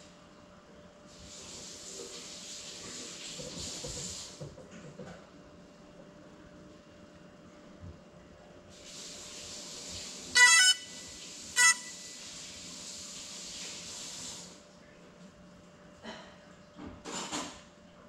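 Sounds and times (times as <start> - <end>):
vehicle horn honking: 10.4 - 11.0, 11.6 - 12.1.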